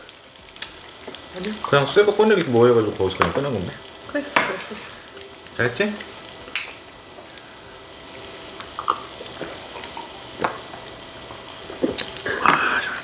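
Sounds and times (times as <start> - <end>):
beef sizzling on a grill: 0.0 - 13.0
tableware clicking: 6.5 - 6.9.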